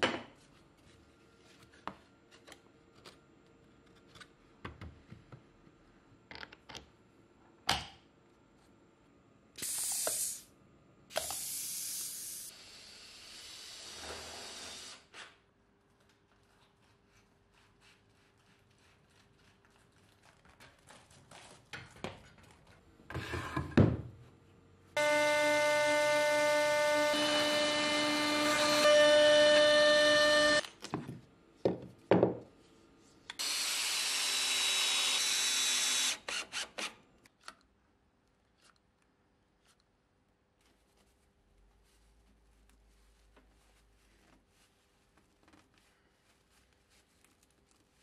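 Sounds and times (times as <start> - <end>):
hot-air gun hissing: 9.6 - 10.5, 11.1 - 15.1
router spindle whining cutting wood: 25.0 - 30.6.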